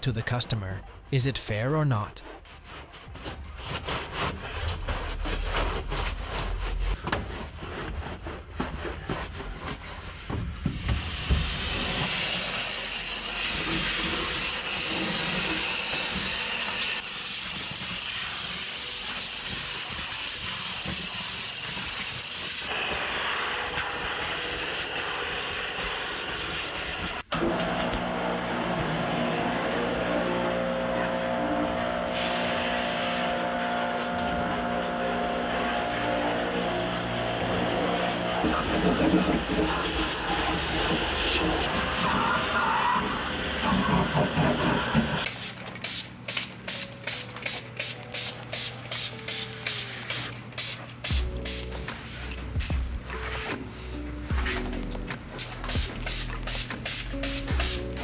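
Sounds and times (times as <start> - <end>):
motor humming: 27.3 - 45.3
rapid rubbing strokes: 55.4 - 58.0.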